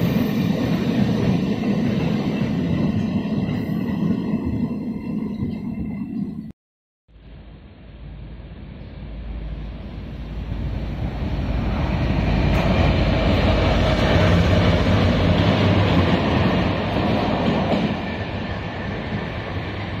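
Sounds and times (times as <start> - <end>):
train wheels on rails: 0.0 - 6.0, 9.1 - 20.0
diesel locomotive engine hum: 7.1 - 20.0.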